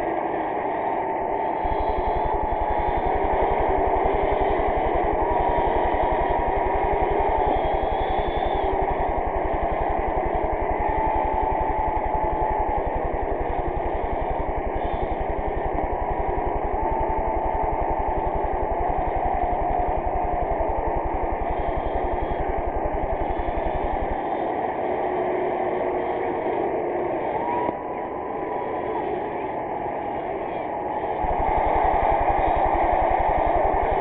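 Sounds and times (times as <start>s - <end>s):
crowd cheering and applauding: 9.4s - 13.3s, 31.2s - 34.0s
low buzz: 31.2s - 34.0s.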